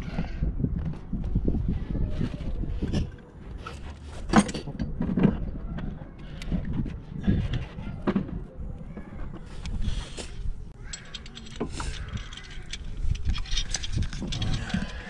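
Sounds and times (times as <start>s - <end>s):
metallic clicks and knocks: 10.7s - 15.0s.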